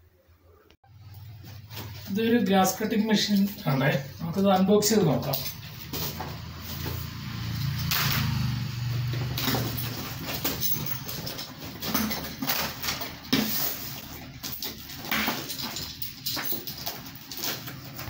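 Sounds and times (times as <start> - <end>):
cardboard rustling and scraping: 1.2 - 2.4, 5.6 - 7.2.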